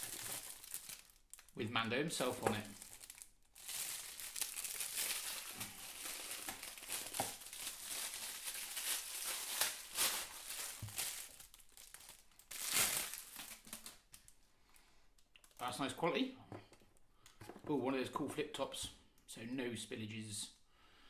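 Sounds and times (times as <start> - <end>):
plastic bag crinkling: 0.0 - 1.6, 2.2 - 14.4.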